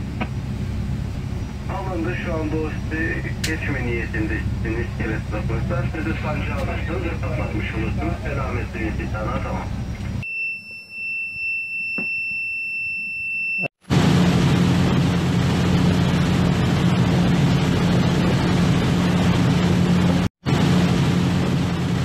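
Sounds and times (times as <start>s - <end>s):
engine-room machinery humming: 0.0s - 10.3s, 13.8s - 22.0s
high-pitched alarm tone: 10.2s - 13.7s.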